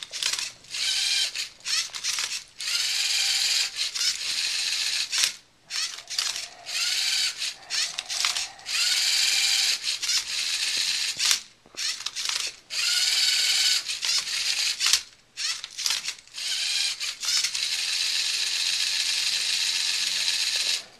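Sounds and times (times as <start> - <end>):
sharp plastic clicks: 0.0 - 2.5, 9.6 - 12.6, 13.5 - 16.2
servo motors whirring: 0.0 - 20.9.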